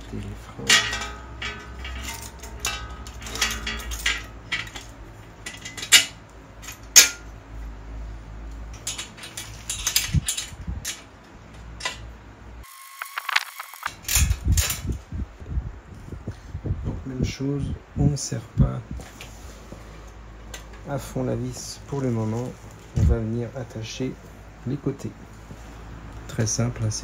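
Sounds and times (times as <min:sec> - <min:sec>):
metallic clicks of bicycle tools: 0:00.6 - 0:07.4, 0:08.5 - 0:12.1.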